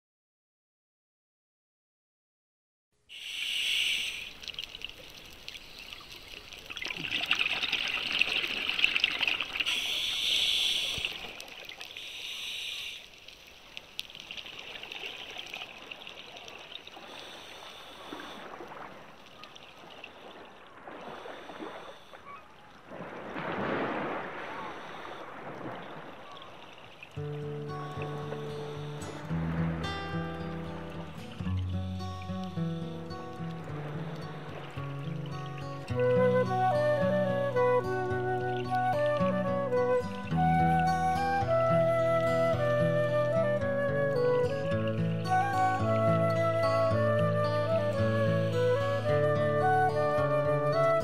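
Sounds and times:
bubbling water underwater: 4.3s - 22.3s.

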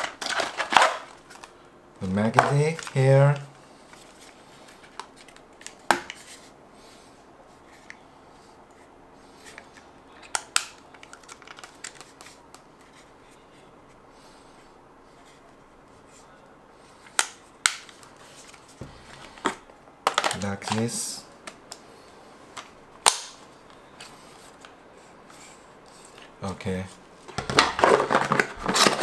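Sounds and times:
plastic clicks and rattling: 9.5s - 12.6s
loud plastic snap: 23.0s - 23.4s.

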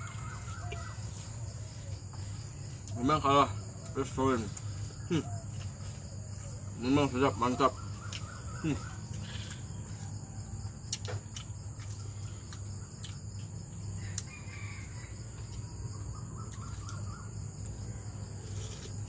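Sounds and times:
bird calls: 0.0s - 2.7s, 3.8s - 10.1s, 15.9s - 18.1s
insect drone: 0.0s - 19.0s.

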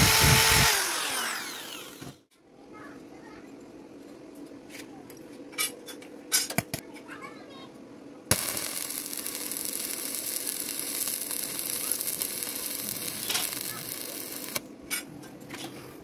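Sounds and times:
welding arc crackling and hissing: 0.0s - 2.1s, 8.3s - 14.7s.

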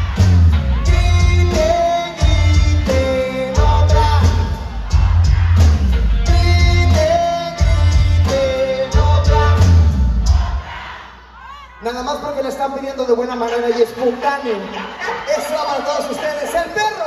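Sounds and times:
pulsing bass line: 0.0s - 10.5s
drum kit: 0.0s - 10.9s
man singing: 0.7s - 4.7s, 6.2s - 9.9s.

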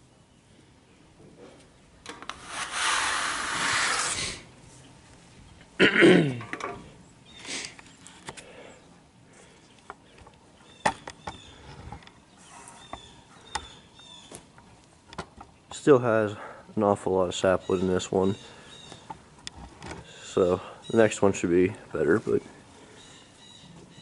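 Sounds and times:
brush sweeping sawdust: 2.3s - 4.4s.

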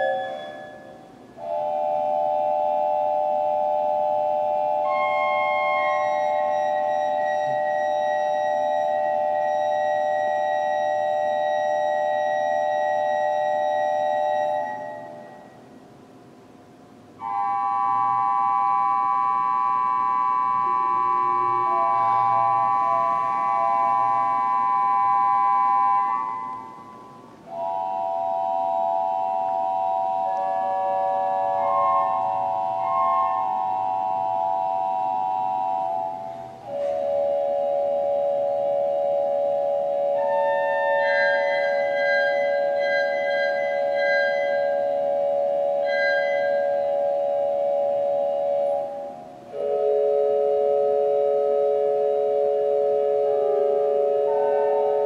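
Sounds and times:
organ playing held chords: 0.0s - 15.6s, 17.2s - 55.0s.

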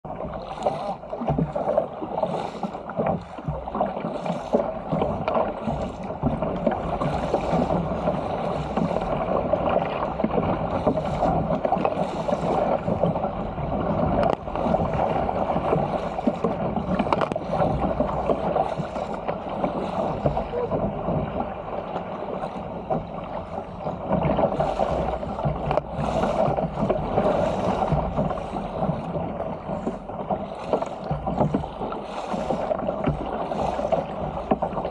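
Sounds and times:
paddle stroke splashes: 0.0s - 34.9s
water rushing along a hull: 0.0s - 34.9s.

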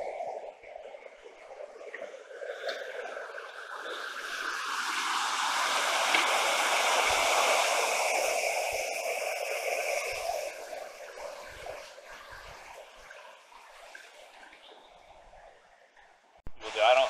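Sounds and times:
river rushing over boulders: 5.0s - 10.6s.

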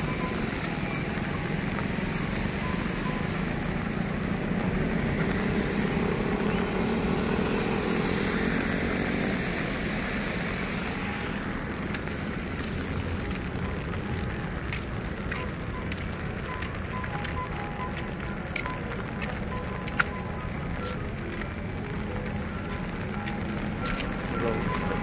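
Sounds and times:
vehicle engine passing: 0.0s - 13.9s
steady outdoor rumble: 0.0s - 25.0s.

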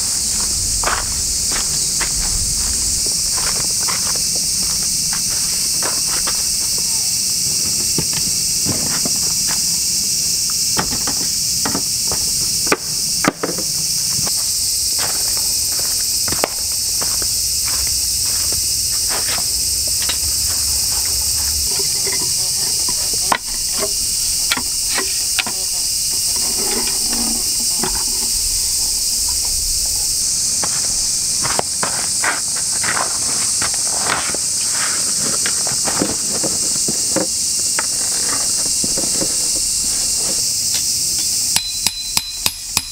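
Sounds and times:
insects chirring: 0.0s - 42.9s
camp gear knocks and clicks: 7.6s - 9.7s, 10.7s - 14.3s, 20.0s - 28.4s.

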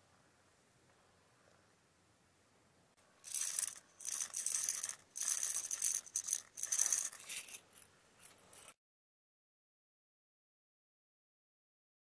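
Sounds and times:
sugar pearls rattling in ceramic cup: 3.2s - 8.7s.

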